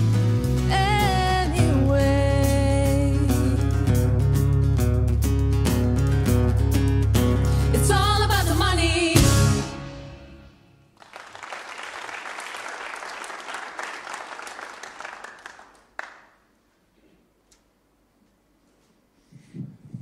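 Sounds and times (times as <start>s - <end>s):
audience applauding: 11.0s - 16.5s.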